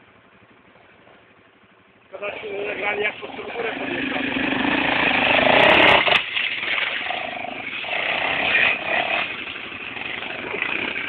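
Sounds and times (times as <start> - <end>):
quad bike engine revving: 2.2 - 11.0.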